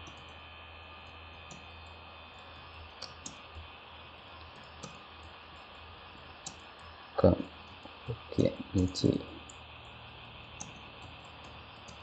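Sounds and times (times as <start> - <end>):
low electrical hum: 0.0 - 12.0
keyboard keys clicking: 10.6 - 12.0.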